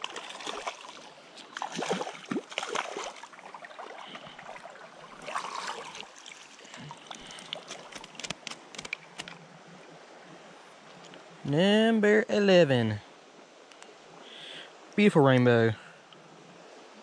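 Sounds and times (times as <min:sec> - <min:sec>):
fish splashing: 0:00.0 - 0:09.3
flowing water: 0:00.0 - 0:11.4.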